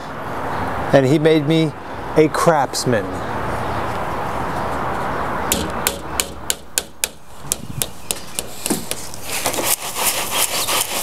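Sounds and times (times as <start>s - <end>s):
hammer tapping nails into wood: 5.5s - 9.0s.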